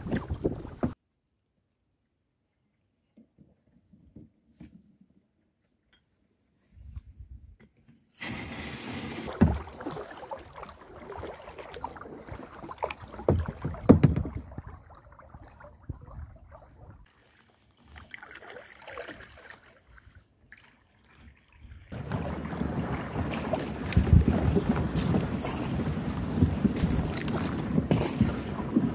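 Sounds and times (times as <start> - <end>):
paddle splashing in water: 0.0 - 1.0, 8.2 - 28.9.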